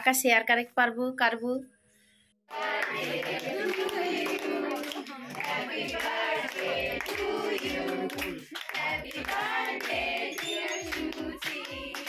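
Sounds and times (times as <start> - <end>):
handclaps keeping time: 2.5 - 12.0
women and children singing: 2.5 - 12.0.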